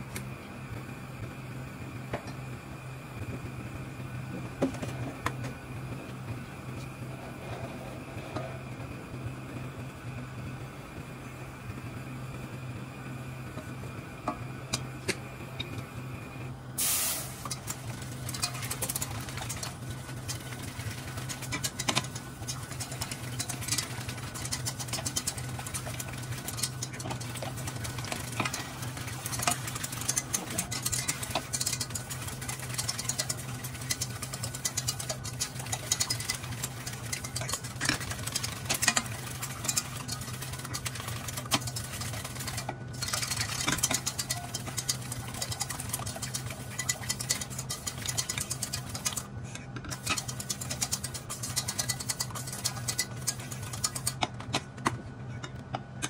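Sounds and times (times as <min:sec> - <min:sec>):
milk hissing in hot pan: 0:16.8 - 0:18.8
roux stirred in saucepan: 0:17.4 - 0:49.3, 0:49.9 - 0:54.2
whisk scraping against pan: 0:18.3 - 0:49.3, 0:50.0 - 0:54.2.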